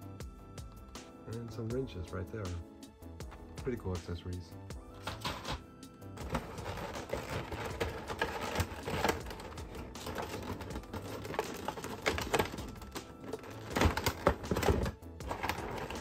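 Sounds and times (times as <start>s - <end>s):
plastic packaging clicks and rustles: 4.9s - 5.6s, 6.2s - 16.0s.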